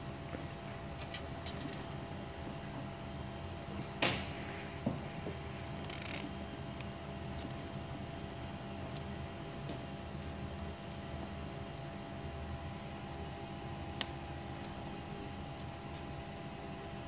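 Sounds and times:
steady low hum: 0.0 - 17.0
cable ties clicking: 5.7 - 6.3.

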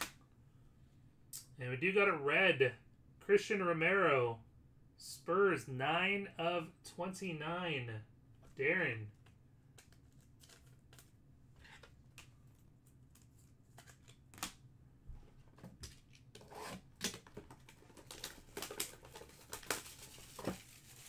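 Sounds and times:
plastic wrap crackling and rustling: 15.8 - 21.0.

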